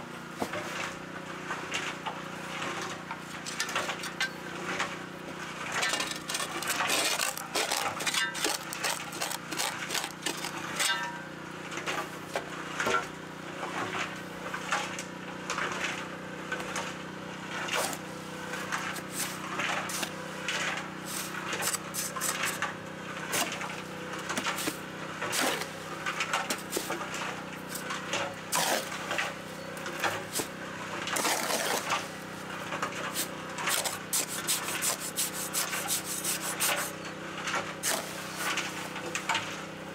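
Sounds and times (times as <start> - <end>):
shovel and trowel scraping: 5.6 - 11.1, 17.6 - 39.6.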